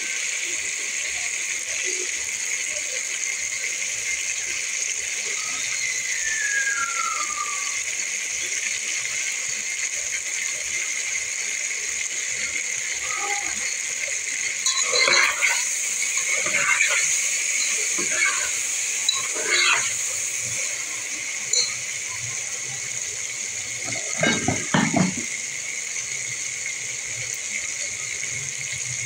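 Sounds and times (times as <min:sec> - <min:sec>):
chicken frying in oil: 0:00.0 - 0:29.0
spoon scraping metal pot: 0:14.5 - 0:20.0, 0:21.5 - 0:21.8, 0:23.8 - 0:25.3.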